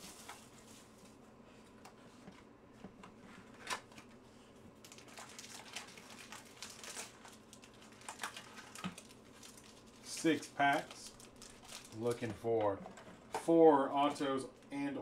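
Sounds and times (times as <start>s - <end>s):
foil packs crinkling: 0.0s - 1.0s, 4.8s - 12.6s.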